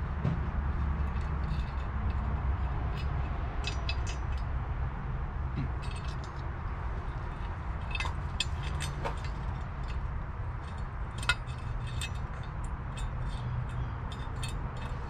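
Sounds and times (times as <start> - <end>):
steady low rumble: 0.0 - 15.0
light metallic clinks and taps: 1.0 - 4.5, 7.3 - 15.0.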